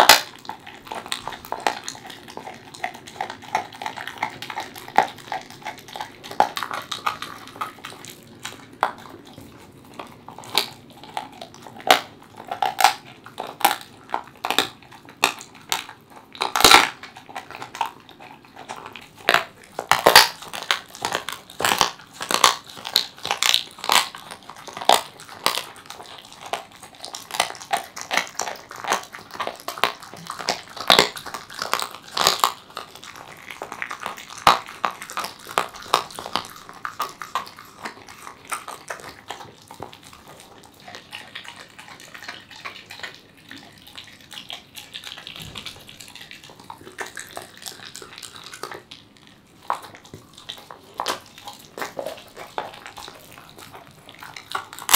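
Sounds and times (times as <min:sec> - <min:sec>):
dog crunching bone: 0:00.0 - 0:54.9.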